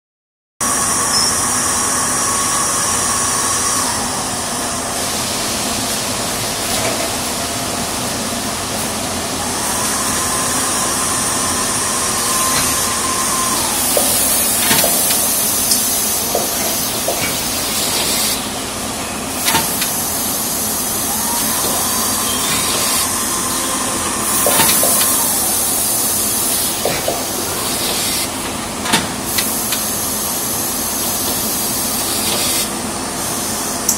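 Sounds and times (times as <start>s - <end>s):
machine whine: 0.6s - 33.9s
packing machine din: 8.8s - 32.8s
hissing air bursts: 9.6s - 33.7s.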